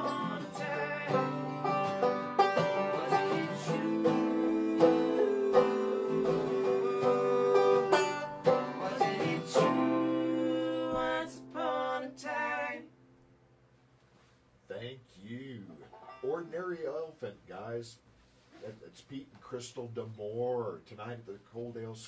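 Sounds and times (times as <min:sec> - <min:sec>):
woman singing: 0:00.0 - 0:01.3, 0:02.7 - 0:12.9
banjo: 0:00.0 - 0:12.7, 0:15.4 - 0:17.2
acoustic guitar: 0:00.0 - 0:13.2, 0:15.4 - 0:17.4.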